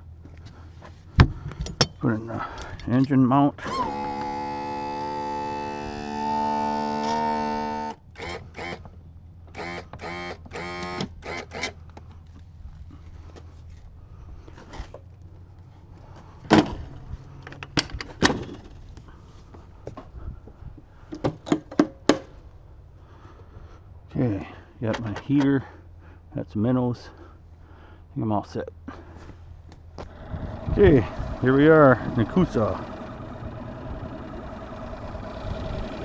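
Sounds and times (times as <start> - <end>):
electric trim motor whining: 3.6 - 8.9, 9.5 - 11.8, 30.0 - 36.0.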